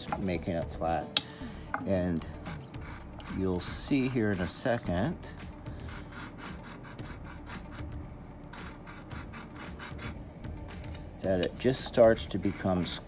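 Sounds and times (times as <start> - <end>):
file rasping on metal: 2.2 - 4.7, 5.7 - 10.2, 11.7 - 13.0.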